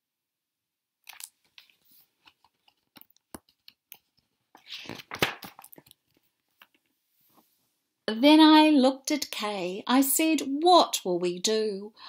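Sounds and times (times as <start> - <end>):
book handling clicks: 1.1 - 6.8
paper rustling: 1.1 - 7.4.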